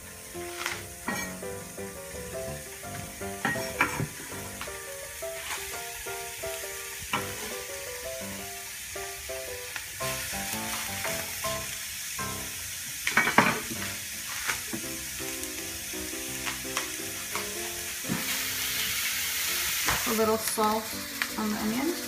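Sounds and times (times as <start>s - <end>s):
onion sizzling in frying pan: 0.0s - 22.0s.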